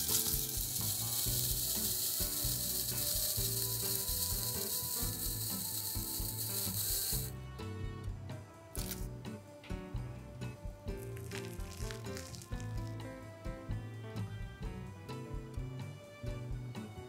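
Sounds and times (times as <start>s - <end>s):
sparkler fizzing and crackling: 0.0s - 7.3s, 8.8s - 9.0s, 11.0s - 13.0s
soft background music: 0.0s - 17.0s.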